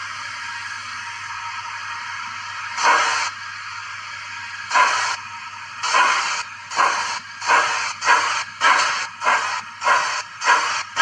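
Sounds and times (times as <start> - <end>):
steam chuffs from small speaker: 2.7 - 3.4, 4.6 - 5.2, 5.8 - 11.0.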